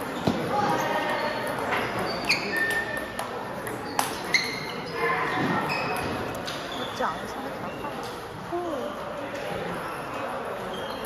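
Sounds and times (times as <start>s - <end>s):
table tennis balls clicking: 1.4s - 4.3s.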